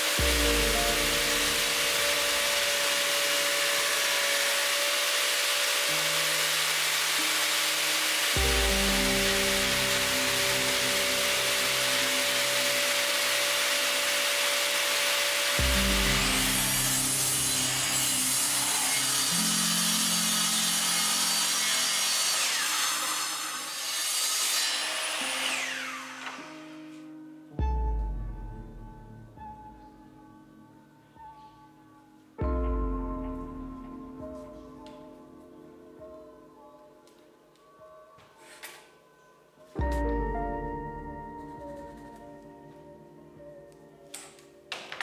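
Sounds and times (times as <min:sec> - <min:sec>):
power saw cutting plywood: 0:00.0 - 0:27.1
background music: 0:00.0 - 0:45.0.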